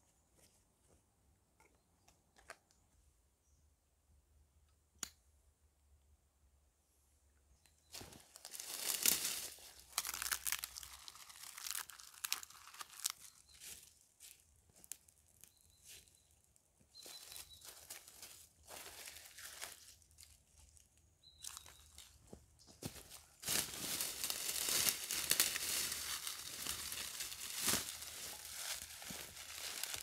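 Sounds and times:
rustling and crinkling handling: 0:07.9 - 0:16.2, 0:16.8 - 0:30.0.

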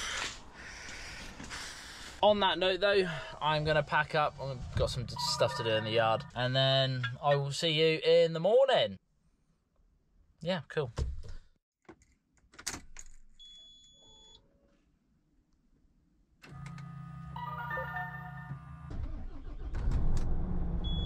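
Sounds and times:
lorry engine starting: 0:16.5 - 0:21.0
chime-like tones: 0:17.4 - 0:18.5.

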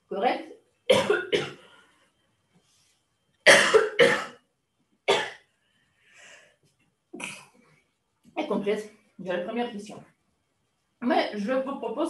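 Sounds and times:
woman coughing: 0:00.9 - 0:01.6, 0:03.5 - 0:04.3, 0:05.1 - 0:05.4, 0:07.2 - 0:07.5.

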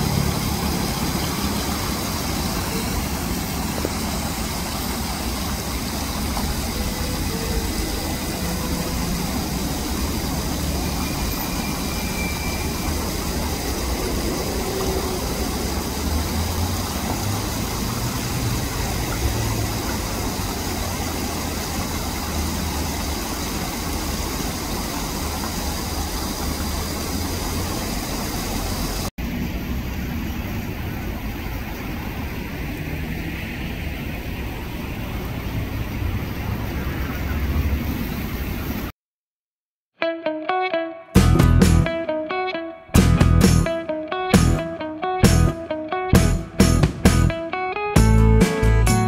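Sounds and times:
even hiss: 0:00.0 - 0:29.1.

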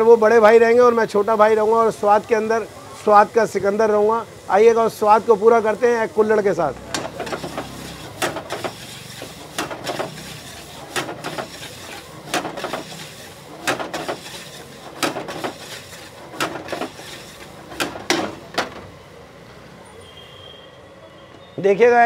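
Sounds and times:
vegetables sizzling: 0:00.2 - 0:18.7
metal spatula scraping frying pan: 0:07.0 - 0:18.3.

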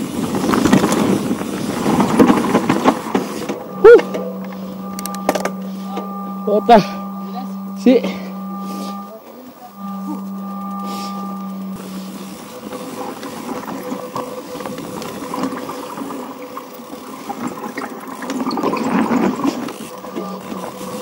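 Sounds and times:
steady hum: 0:00.3 - 0:15.5, 0:19.9 - 0:21.0.

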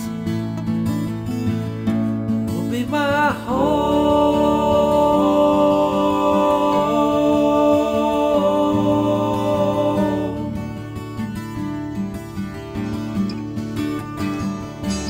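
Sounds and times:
person singing long wordless notes: 0:02.6 - 0:11.0.

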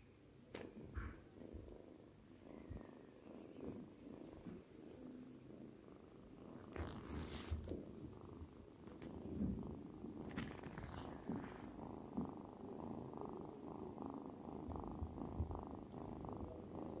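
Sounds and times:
kitten purring: 0:00.5 - 0:17.0
soft rustles: 0:02.8 - 0:05.6, 0:06.4 - 0:12.3.

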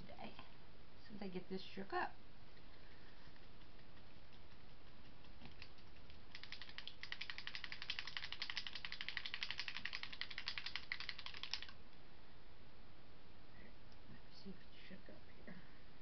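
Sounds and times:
mixing ball rattling in container: 0:03.4 - 0:11.8.

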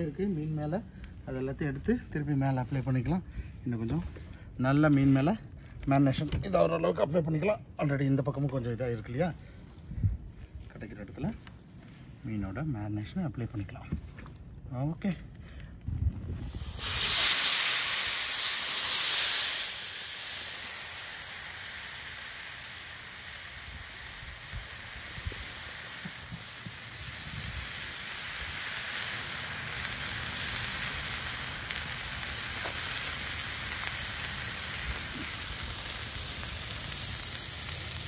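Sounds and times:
fish sizzling on a griddle: 0:16.4 - 0:38.0.

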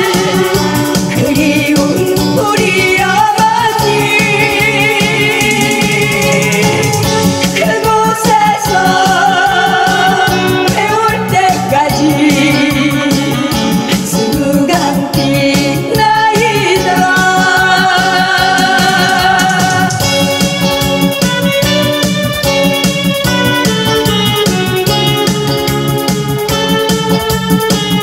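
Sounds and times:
woman singing into microphone: 0:00.0 - 0:20.2
amplified backing music: 0:00.0 - 0:28.0.

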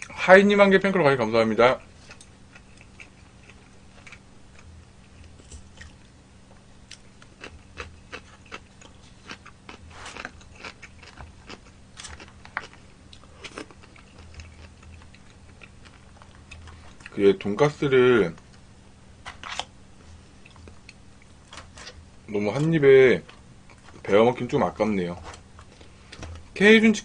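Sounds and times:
chewing and biting food: 0:02.0 - 0:06.1, 0:06.9 - 0:17.2.

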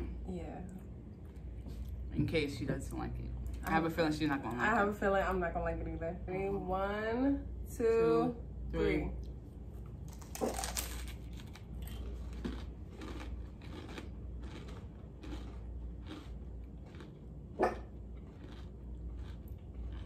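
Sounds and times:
crunchy bites and chewing: 0:10.0 - 0:20.0.

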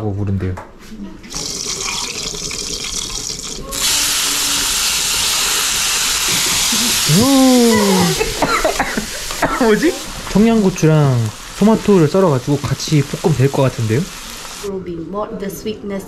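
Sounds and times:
food sizzling in hot oil: 0:01.3 - 0:14.7
person exclaiming: 0:06.7 - 0:08.4.

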